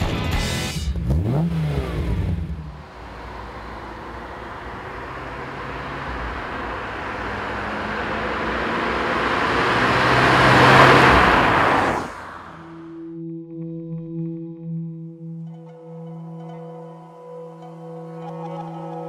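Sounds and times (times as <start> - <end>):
car engine approaching: 0.5 - 13.2.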